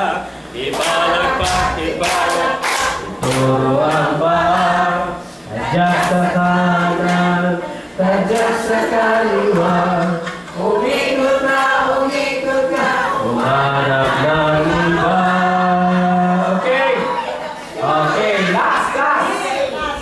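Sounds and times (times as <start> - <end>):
group singing in unison: 0.0 - 18.9.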